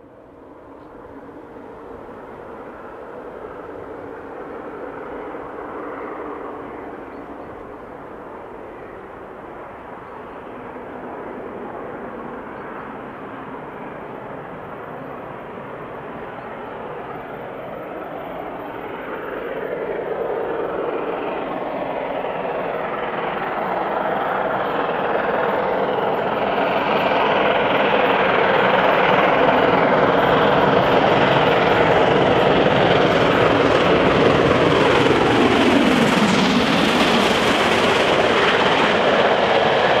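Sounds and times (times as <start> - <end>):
steam locomotives working hard: 0.0 - 40.0.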